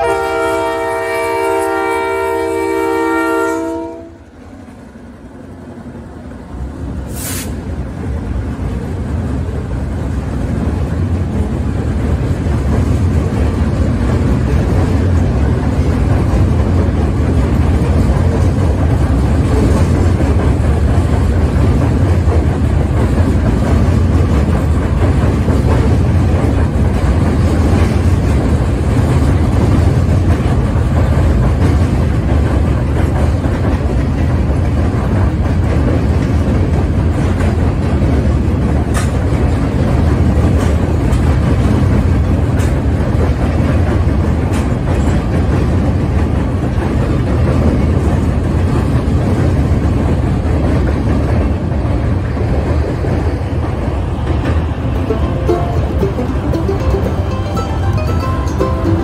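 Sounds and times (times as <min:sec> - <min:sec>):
locomotive horn: 0:00.0 - 0:04.3
train rumbling across steel bridge: 0:00.0 - 0:59.0.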